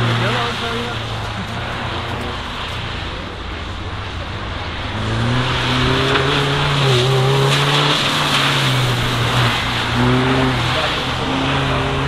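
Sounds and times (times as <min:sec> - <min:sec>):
car engine accelerating: 0:00.0 - 0:12.0
tyres hissing on wet road: 0:00.0 - 0:12.0.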